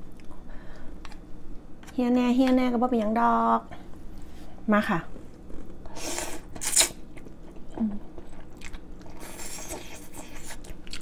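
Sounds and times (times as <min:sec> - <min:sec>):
chewing: 0:06.7 - 0:11.0.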